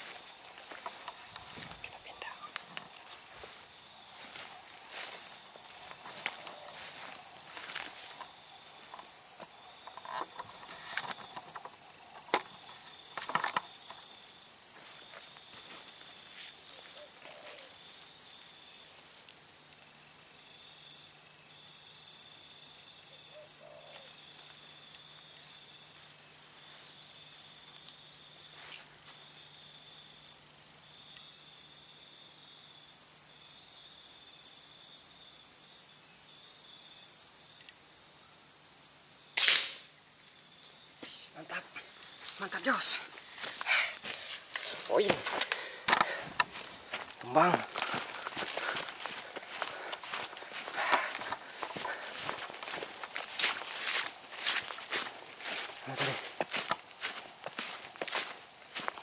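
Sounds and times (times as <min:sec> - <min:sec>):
pulsing insect chorus: 0:00.0 - 0:59.0
air rifle shot: 0:39.4 - 0:39.8.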